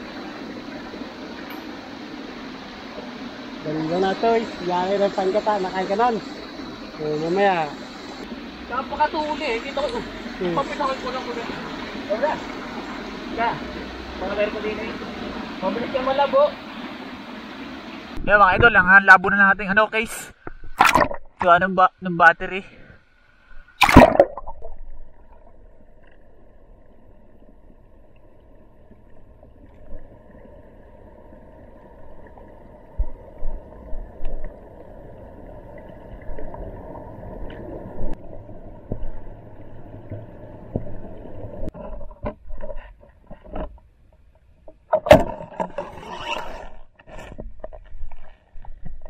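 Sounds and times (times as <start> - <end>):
splashing and bubbling: 20.4 - 21.4, 23.6 - 42.5
splash into water: 20.8 - 21.4, 23.8 - 24.9
underwater knocks and gurgles: 32.0 - 45.9, 46.9 - 49.0.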